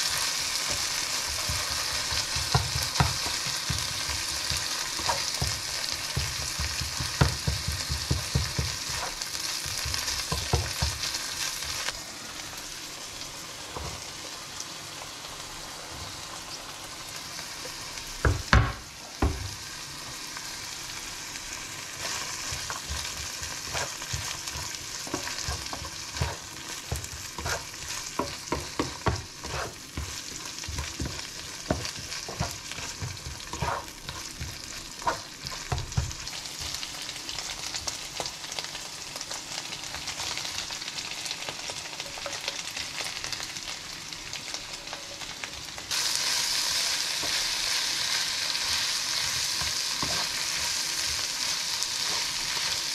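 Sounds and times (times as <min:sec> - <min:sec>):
meat and vegetables sizzling: 0:00.0 - 0:52.9
spatula scraping pan: 0:00.6 - 0:11.8, 0:22.0 - 0:36.8, 0:48.6 - 0:52.9
spatula knocking on pan: 0:00.7 - 0:11.1, 0:22.5 - 0:36.3.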